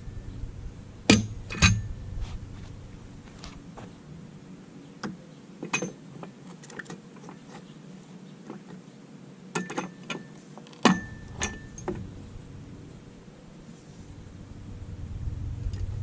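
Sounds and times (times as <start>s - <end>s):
metal bar knocking and clanking: 1.1s - 1.9s, 9.6s - 12.0s.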